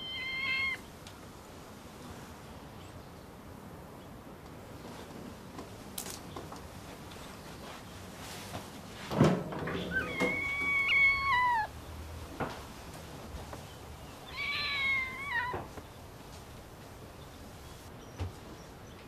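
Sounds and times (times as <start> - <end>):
cat meowing: 0.0 - 0.9, 9.8 - 11.7, 14.2 - 15.7.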